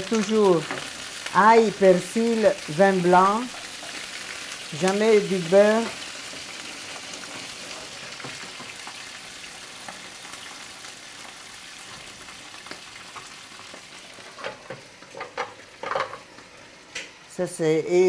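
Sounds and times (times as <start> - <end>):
shellfish sizzling in oil: 0.0 - 18.0.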